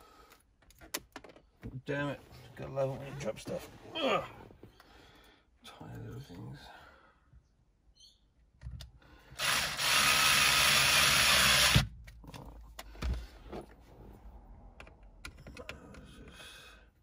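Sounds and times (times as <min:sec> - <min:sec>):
cordless drill driving screw: 0:09.4 - 0:11.9.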